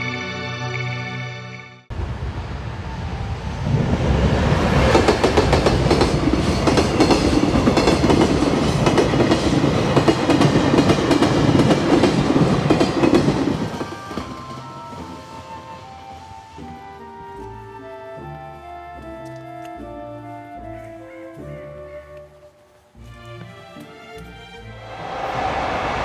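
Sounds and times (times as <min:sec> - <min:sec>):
freight train passing: 0:01.9 - 0:18.6, 0:24.7 - 0:26.0.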